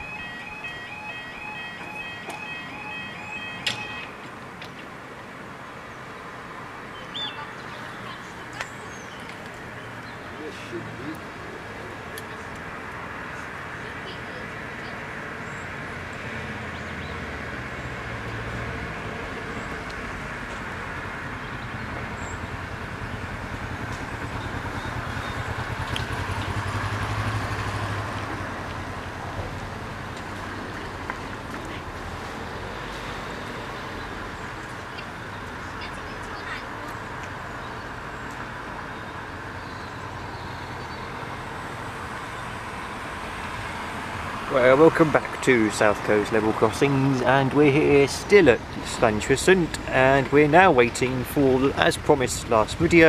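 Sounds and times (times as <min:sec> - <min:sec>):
distant road traffic hum: 0:00.0 - 0:53.0.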